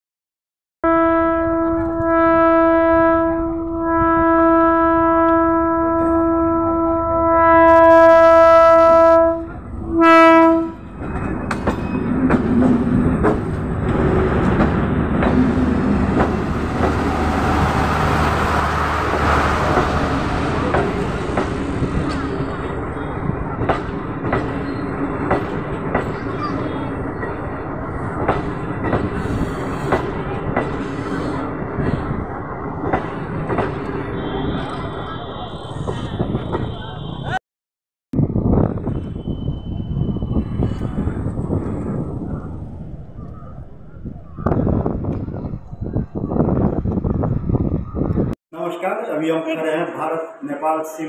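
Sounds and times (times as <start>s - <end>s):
train horn blasts: 0.8s - 10.9s
train passing: 1.5s - 37.4s, 38.2s - 51.0s
wheels clacking over rail joints: 10.8s - 22.8s, 23.4s - 31.1s.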